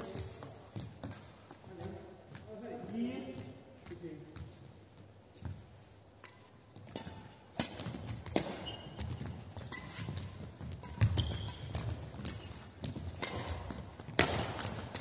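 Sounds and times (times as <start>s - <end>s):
footfalls on court floor: 0.0s - 5.9s, 6.7s - 15.0s
racket hitting shuttlecock: 5.4s - 15.0s
shoe squeaks: 8.1s - 13.8s.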